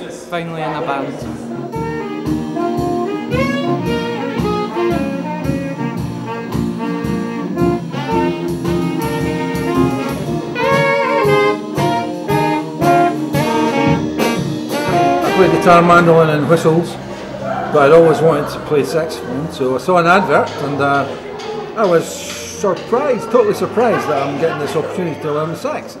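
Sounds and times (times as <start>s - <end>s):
band playing jazzy tune: 1.0s - 25.6s
saxophones playing melody: 1.1s - 21.3s
drum kit beat: 1.2s - 17.1s, 21.8s - 24.4s.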